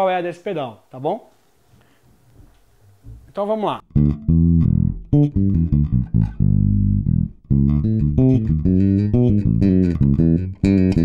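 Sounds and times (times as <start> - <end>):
slap bass guitar: 3.8 - 11.0.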